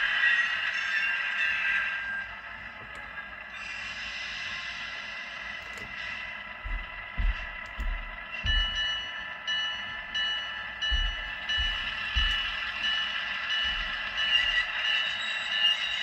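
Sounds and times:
wheels grinding on rail: 0.0 - 16.0
model diesel engine sound: 1.6 - 15.0
wheel flange squeal: 3.0 - 6.4, 11.6 - 16.0
soft low thumps: 6.6 - 9.1, 10.8 - 12.8, 13.6 - 14.7.

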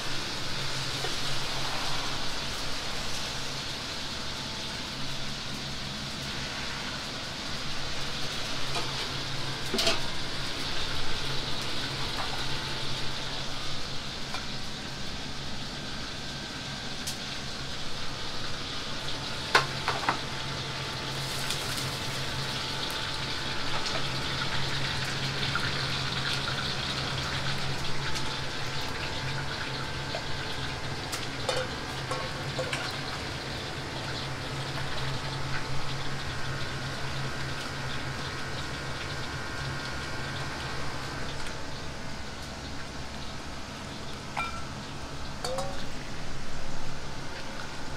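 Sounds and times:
food sizzling in a wok: 0.0 - 47.9
low hum of gas burners: 0.0 - 47.9
metal ladle clinks: 44.4 - 44.7, 45.4 - 45.8.

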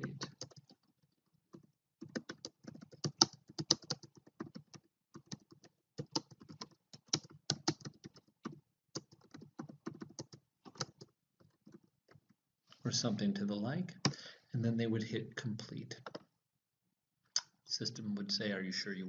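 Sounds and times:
typing on computer keyboard: 0.0 - 12.3.

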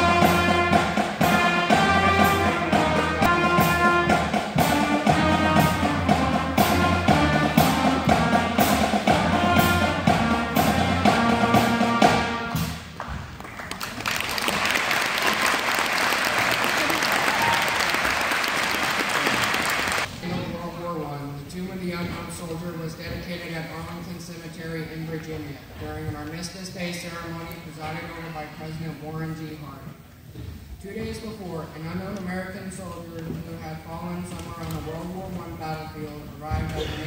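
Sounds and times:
concert band playing: 0.0 - 13.0
steady drum beat: 0.0 - 13.0
audience applauding: 13.0 - 20.1.

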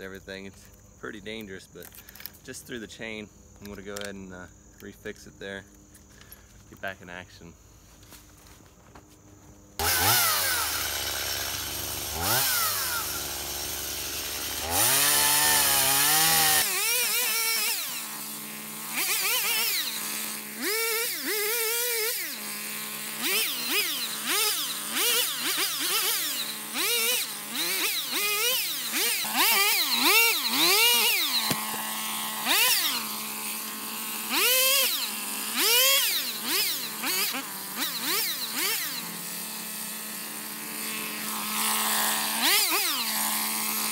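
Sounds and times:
chainsaw revving: 9.8 - 43.9.

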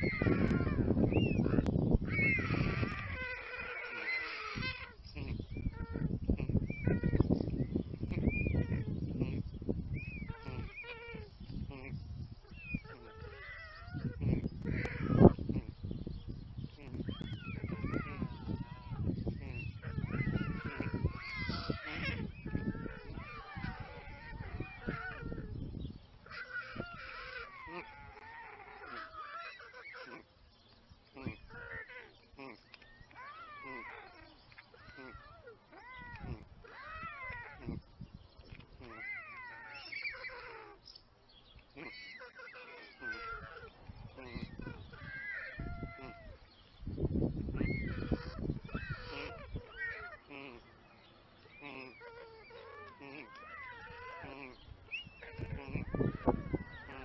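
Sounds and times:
stork chicks begging calls: 0.0 - 57.0
microphone rumbling: 5.1 - 13.1, 13.9 - 26.0, 54.3 - 57.0.

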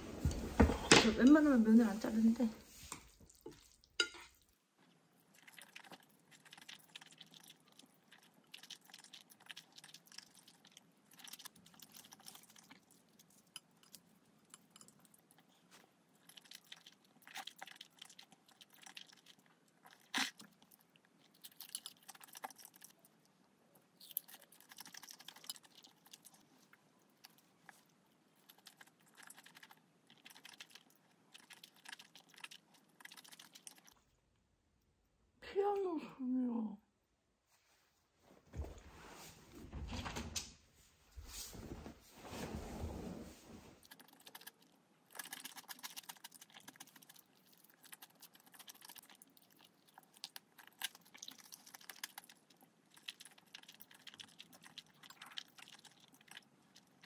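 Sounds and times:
noodles slurped and chewed: 2.8 - 34.2, 43.8 - 57.0.

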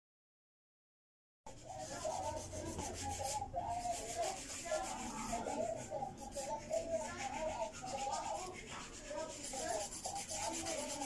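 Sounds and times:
nail file rasping: 3.8 - 11.0.

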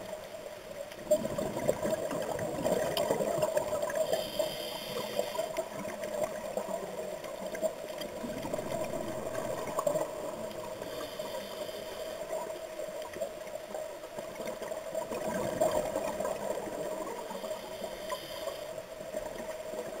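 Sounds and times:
underwater hum: 0.0 - 20.0
gurgling exhaled bubbles: 1.0 - 4.1, 5.5 - 10.8, 14.3 - 17.3
regulator inhalation hiss: 4.0 - 5.6, 10.7 - 12.3, 17.2 - 18.8.

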